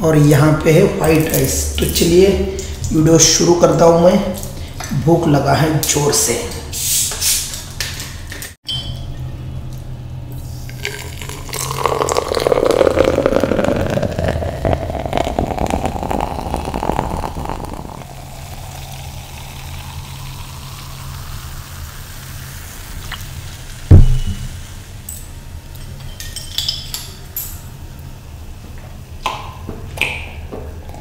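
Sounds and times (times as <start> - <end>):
fizzy drink pouring into glass: 10.6 - 23.4
loud knock: 23.9 - 24.5.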